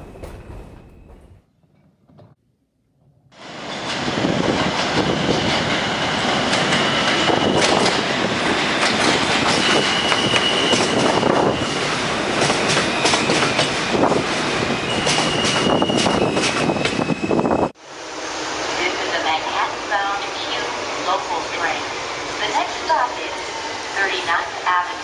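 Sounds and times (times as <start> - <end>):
train wheels rumbling on rails: 0.0 - 1.4, 3.4 - 19.7
high wheel squeal: 6.7 - 7.9, 9.4 - 12.0, 12.6 - 17.8.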